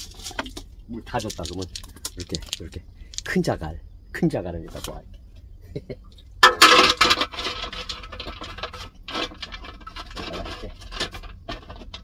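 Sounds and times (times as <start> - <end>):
stones knocking: 0.0 - 3.4
stones scraping and grinding: 0.0 - 3.4, 6.4 - 12.0.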